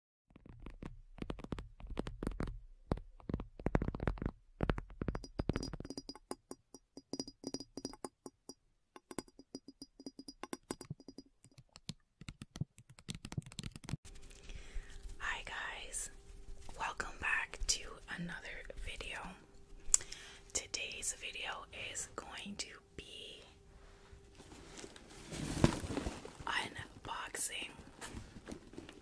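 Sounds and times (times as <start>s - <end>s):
sharp clicks and knocks: 0.4s - 14.0s.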